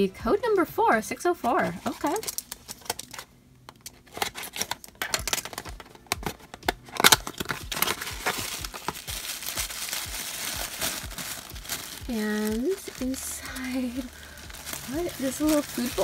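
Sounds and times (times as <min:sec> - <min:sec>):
tissue paper crinkling: 0:04.1 - 0:16.0.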